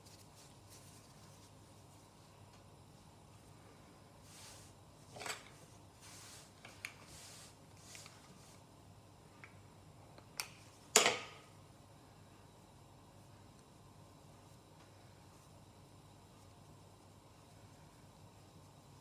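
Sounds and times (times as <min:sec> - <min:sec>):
dough moving over counter: 0:00.0 - 0:08.7.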